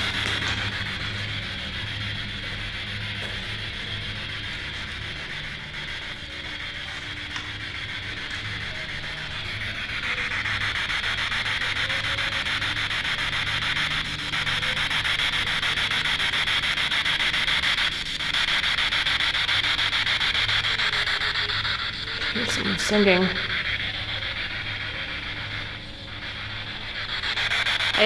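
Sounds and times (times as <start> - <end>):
radio static hiss with rapid scan: 0.0 - 28.0.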